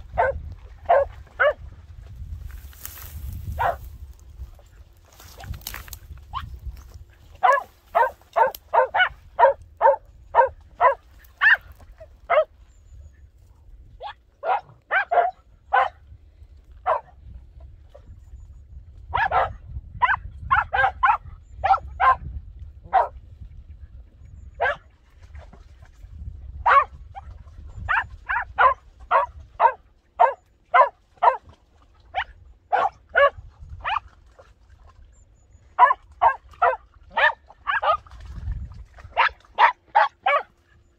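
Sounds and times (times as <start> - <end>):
dog barking sharply: 7.4 - 11.6.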